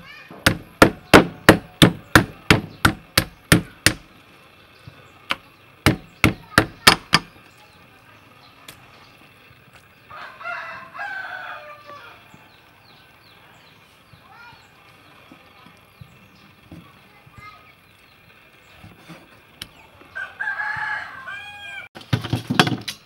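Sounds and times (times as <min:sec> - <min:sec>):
cleaver chopping on wooden block: 0:00.4 - 0:04.1, 0:05.9 - 0:07.3.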